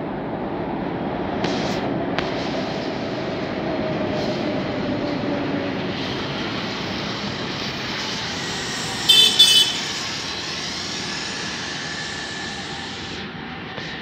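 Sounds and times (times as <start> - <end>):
elevated train rumbling: 0.0 - 14.0
train horn short blasts: 9.1 - 10.2.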